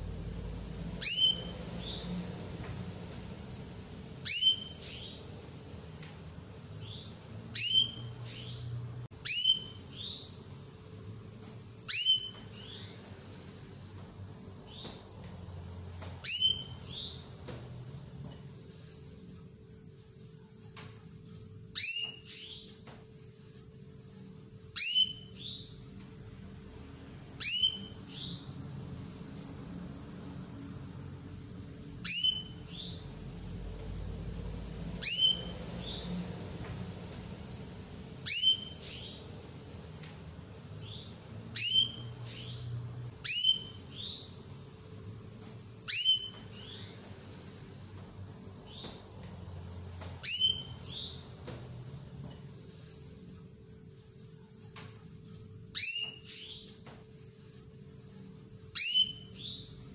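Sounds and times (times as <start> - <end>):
canary chirping: 0.0 - 54.1, 54.7 - 59.9.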